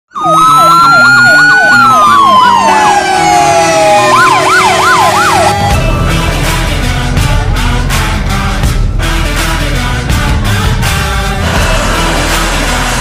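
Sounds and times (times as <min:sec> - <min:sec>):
fire engine siren yelping: 0:00.1 - 0:06.4
gliding siren tone: 0:00.1 - 0:06.6
rock music with steady beat: 0:04.3 - 0:13.0.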